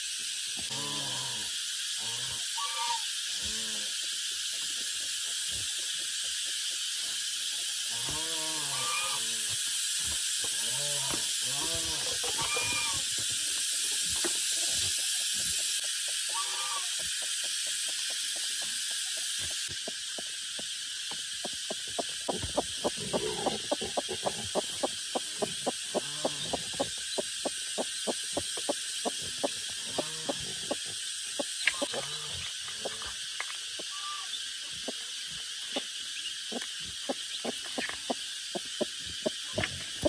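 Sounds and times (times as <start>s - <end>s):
steady high hiss: 0.0s - 40.0s
short animal calls: 2.6s - 3.0s, 8.2s - 9.4s, 10.7s - 13.1s, 16.3s - 16.9s, 33.8s - 34.4s.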